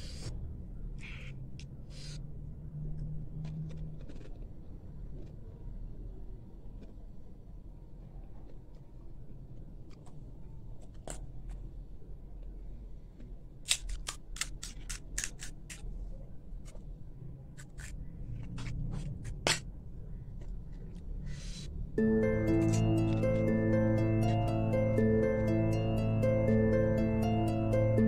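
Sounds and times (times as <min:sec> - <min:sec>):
plucked harp music: 0:22.0 - 0:28.0.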